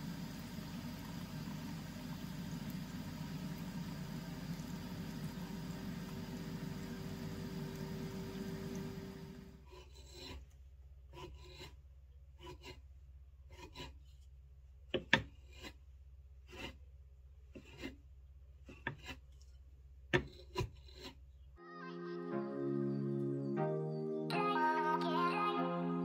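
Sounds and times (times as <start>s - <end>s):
spin dryer whirring: 0.0s - 9.6s.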